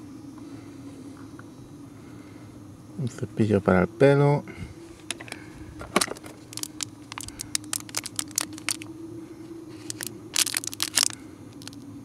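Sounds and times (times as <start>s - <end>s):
faint steady hum: 0.0s - 12.0s
plastic packaging crinkling: 6.0s - 8.9s, 9.7s - 11.8s.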